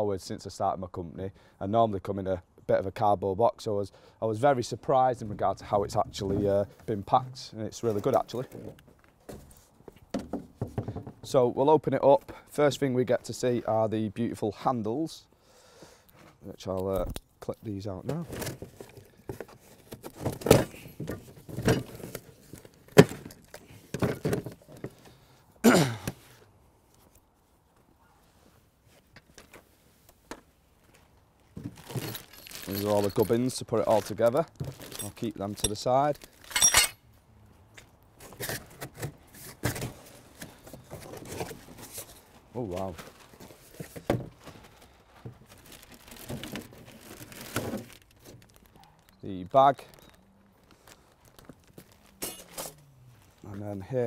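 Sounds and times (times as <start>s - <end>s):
knocks and rattles of handling: 7.8s - 11.4s, 18.0s - 25.2s, 29.0s - 37.0s, 37.8s - 49.2s
plastic wrapping crinkling: 31.4s - 36.6s, 40.8s - 53.5s.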